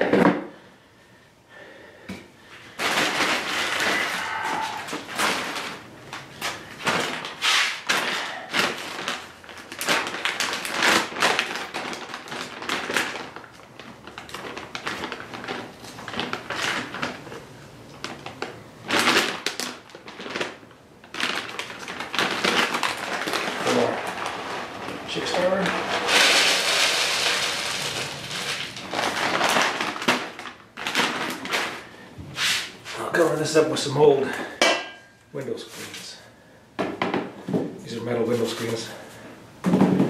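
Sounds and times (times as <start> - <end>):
plastic bags crinkling: 2.4 - 32.2.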